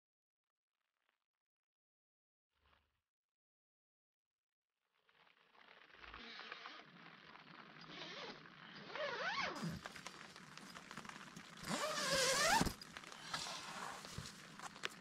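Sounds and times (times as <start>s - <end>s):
tent zipper pulled: 5.2s - 15.0s.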